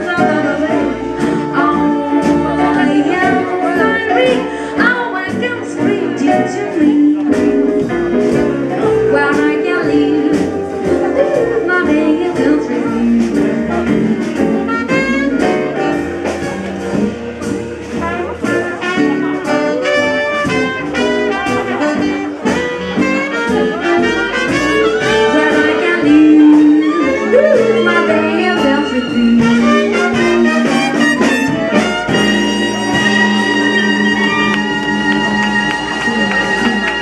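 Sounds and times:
swing jazz band playing: 0.0 - 37.0.

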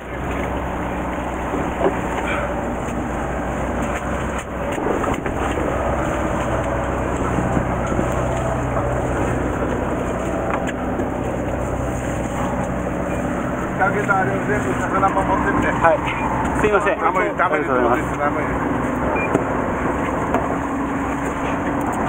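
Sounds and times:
boat engine humming: 0.0 - 22.0
water noise: 0.0 - 22.0
wind: 0.0 - 22.0.

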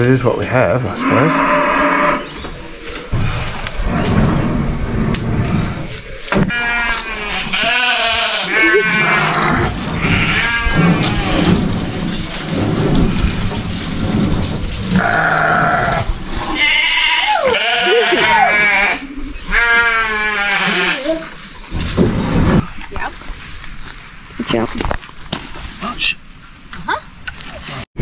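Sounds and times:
livestock bleating: 1.0 - 2.3, 6.5 - 11.5, 15.0 - 21.2.

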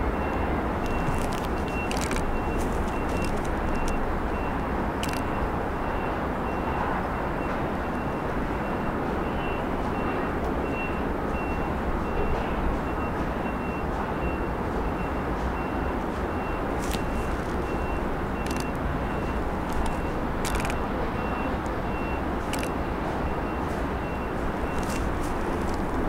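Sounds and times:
sharp clicks: 0.8 - 4.0, 5.0 - 5.3, 18.4 - 18.8, 19.6 - 20.9, 22.4 - 22.8.

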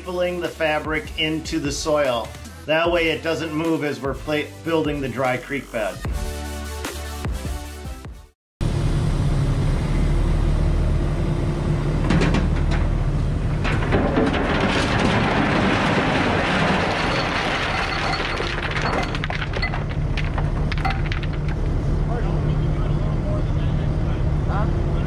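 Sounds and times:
heavy equipment diesel engine: 8.6 - 25.0
rattling and crunching with cracks: 12.1 - 22.0.

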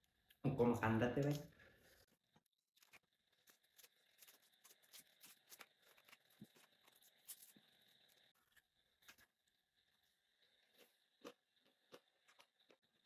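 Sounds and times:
crunching while eating ice cream: 2.7 - 13.0.

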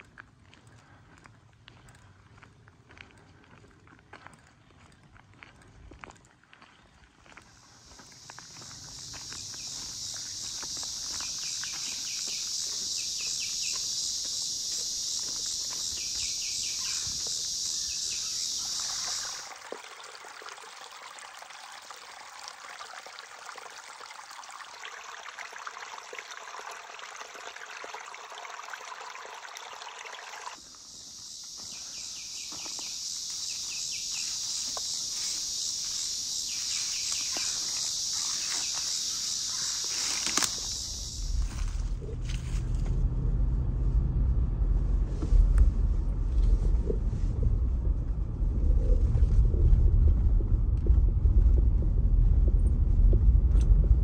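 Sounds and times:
footsteps: 0.5 - 16.4, 30.9 - 43.0
high-pitched insect chorus: 7.4 - 20.2, 24.8 - 42.9
bird chirps: 7.9 - 19.4, 31.1 - 41.4.

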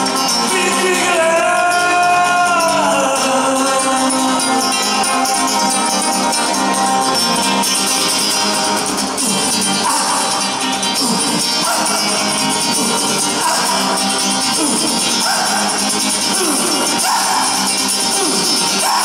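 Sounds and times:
acoustic guitar fingerpicked fast: 0.0 - 19.0
man singing a long held note: 0.5 - 5.2.

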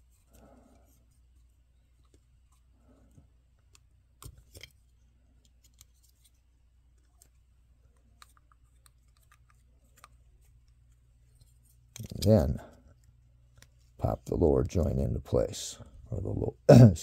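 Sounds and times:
clicks of small plastic parts: 11.9 - 12.3.

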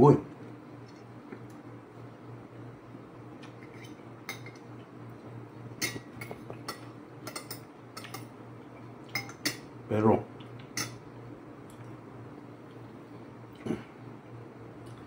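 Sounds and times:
steady low hum: 0.0 - 15.0
cutlery clinking against a bowl: 3.6 - 4.6, 5.8 - 8.3, 9.1 - 9.6, 10.6 - 11.0.

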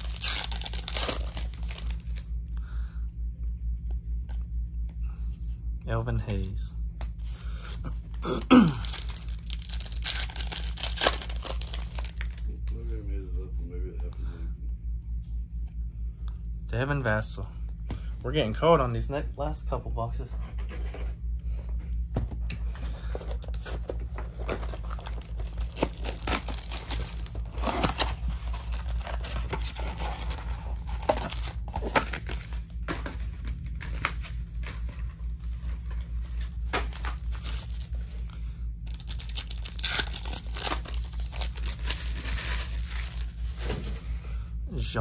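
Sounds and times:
card packs crinkling and tearing: 0.0 - 2.3, 8.2 - 13.0, 23.1 - 44.0.

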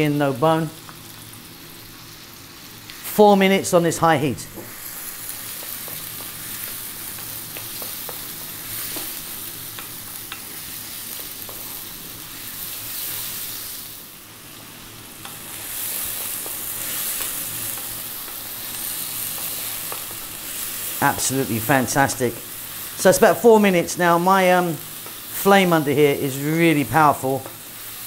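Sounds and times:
food sizzling in a wok: 0.0 - 28.0
wooden spoon clicking against pan: 5.5 - 8.3.

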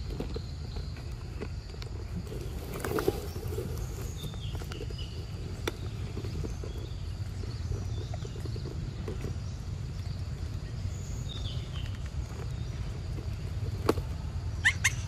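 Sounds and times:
high chirps: 14.6 - 15.0.

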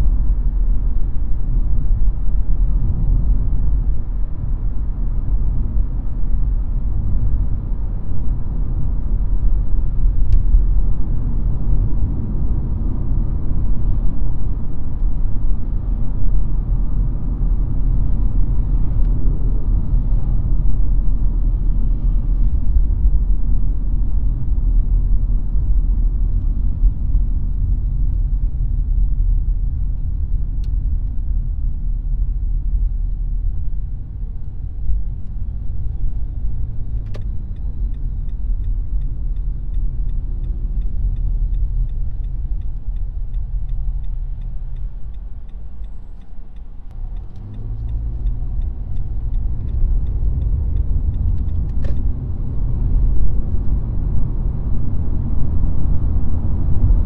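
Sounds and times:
road and engine rumble: 0.0 - 57.0
faint regular ticking: 37.2 - 51.6.

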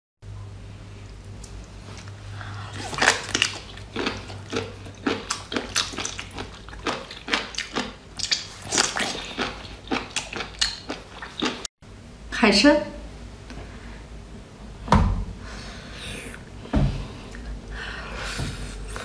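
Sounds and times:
wet smacking and squelching: 2.8 - 11.7.

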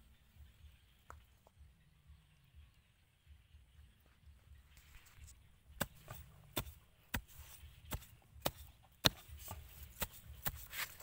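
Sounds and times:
knife chopping into dry soil: 5.7 - 11.0.

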